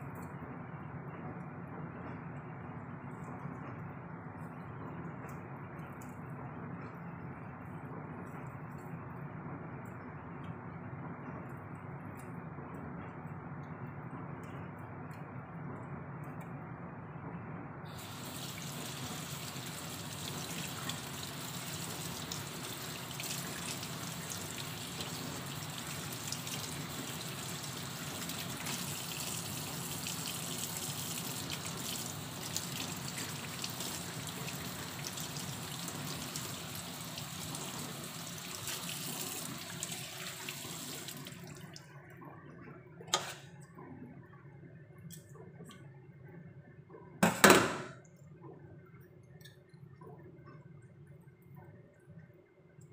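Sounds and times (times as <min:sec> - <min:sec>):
tap water running into sink: 0:18.0 - 0:41.8.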